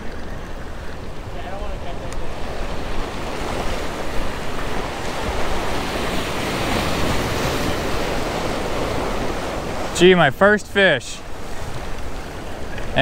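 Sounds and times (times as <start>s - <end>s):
surf breaking over rocks: 0.0s - 13.0s.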